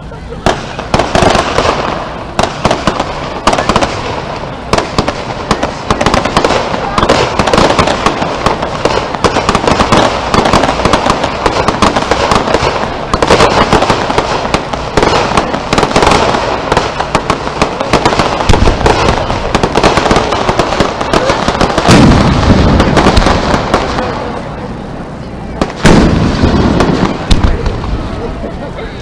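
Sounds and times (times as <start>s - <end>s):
fireworks crackling and popping: 0.0s - 28.8s
deep firework booms: 0.4s - 24.5s, 25.5s - 28.2s.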